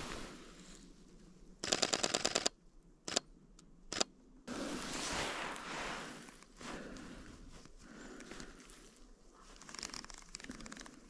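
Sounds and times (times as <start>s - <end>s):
footsteps crunching in snow: 0.0s - 0.8s, 4.5s - 9.5s
camera shutter clicks: 1.6s - 3.3s, 3.9s - 4.1s.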